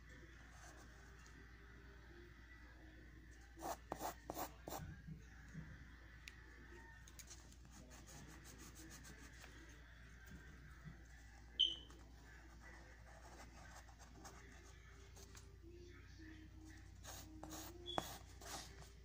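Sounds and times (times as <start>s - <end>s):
pencil scratching on paper: 3.6s - 4.8s, 12.4s - 15.3s, 17.0s - 19.0s
sharp high chirp: 11.6s - 11.9s.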